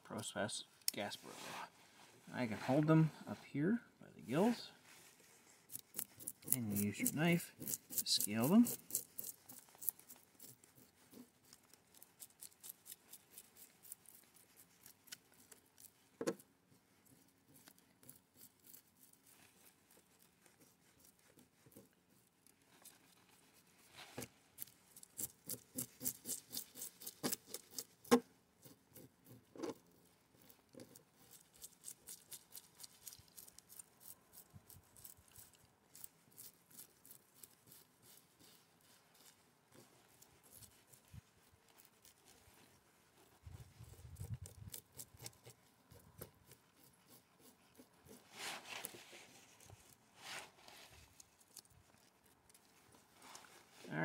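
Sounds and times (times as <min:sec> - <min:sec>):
knife scraping fish scales: 0:05.6 - 0:16.4, 0:24.2 - 0:38.6.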